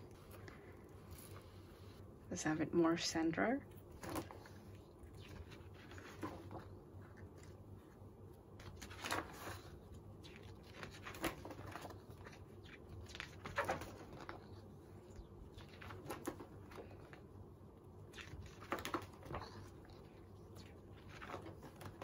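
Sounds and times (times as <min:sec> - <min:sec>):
thick pages turning: 0:04.0 - 0:17.2, 0:18.1 - 0:22.0.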